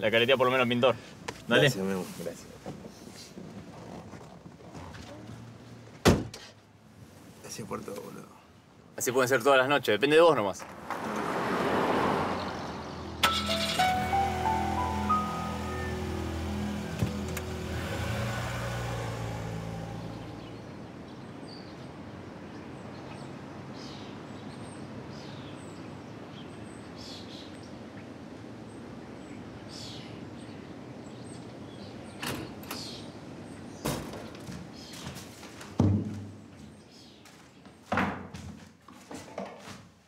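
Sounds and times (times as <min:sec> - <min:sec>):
street background noise: 0:00.0 - 0:40.0
soft music: 0:13.1 - 0:20.0
bucket knocking and thumping down: 0:35.8 - 0:36.4.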